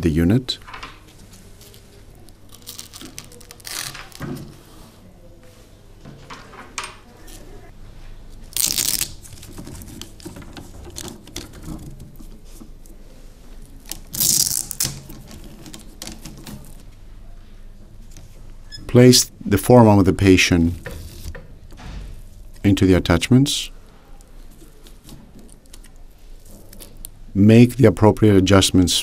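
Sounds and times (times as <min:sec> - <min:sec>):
hook-and-loop straps ripping open: 0:02.5 - 0:04.2, 0:08.5 - 0:10.2, 0:13.9 - 0:16.7.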